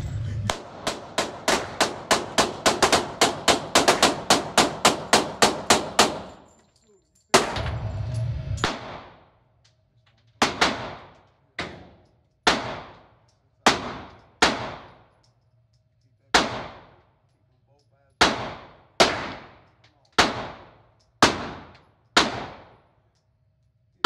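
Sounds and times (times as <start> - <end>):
bang with rush of noise: 7.4 - 9.2.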